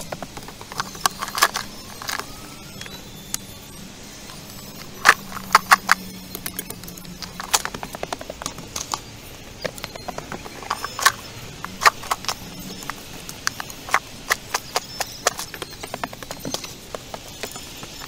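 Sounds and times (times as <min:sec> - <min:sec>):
digging tool striking stony soil: 0:09.7 - 0:17.7.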